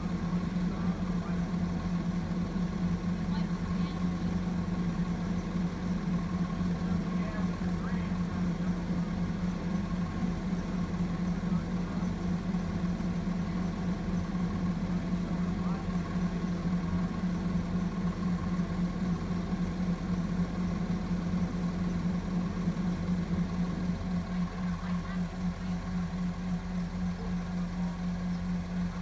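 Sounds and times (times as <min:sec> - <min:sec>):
garbage truck engine idling: 0:00.0 - 0:29.0.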